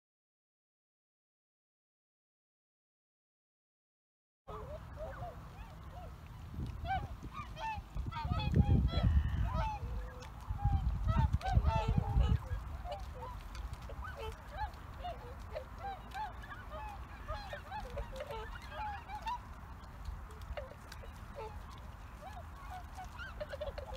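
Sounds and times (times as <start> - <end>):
swans honking: 4.5 - 23.9
wind rumble on microphone: 4.9 - 23.9.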